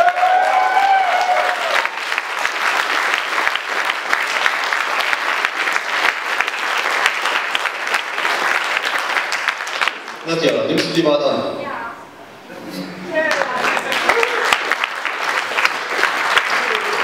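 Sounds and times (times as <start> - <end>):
audience applauding: 0.0 - 10.8, 13.2 - 17.0.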